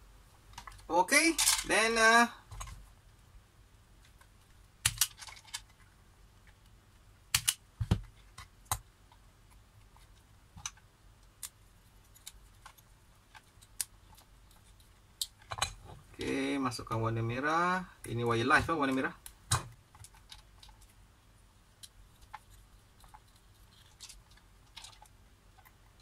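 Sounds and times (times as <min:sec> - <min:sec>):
wire stripper clicks and snaps: 0:07.3 - 0:07.6.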